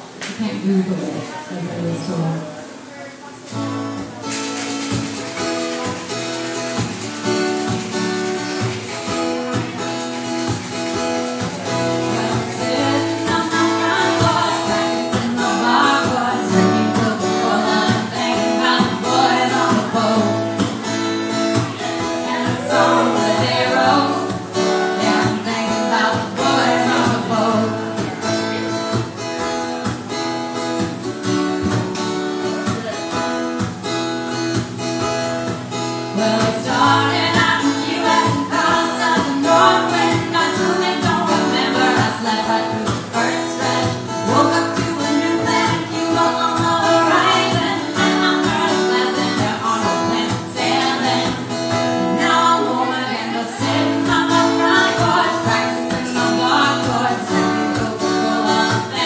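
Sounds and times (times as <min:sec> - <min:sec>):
acoustic guitar strumming chords: 0:00.0 - 0:59.0
women singing: 0:11.6 - 0:28.8, 0:36.1 - 0:59.0.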